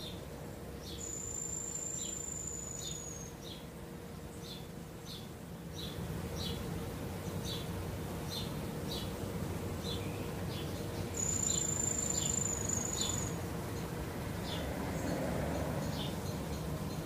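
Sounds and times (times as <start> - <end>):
high-pitched insect whine: 0.0 - 3.6, 10.6 - 17.0
insect chirps: 0.0 - 3.6, 9.8 - 17.0.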